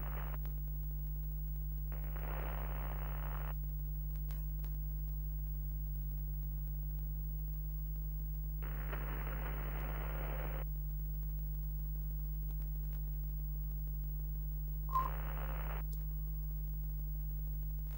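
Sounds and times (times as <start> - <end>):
telephone-like hiss: 0.0 - 0.4, 1.9 - 3.6, 8.6 - 10.6, 14.9 - 15.8
low electrical hum: 0.0 - 17.9.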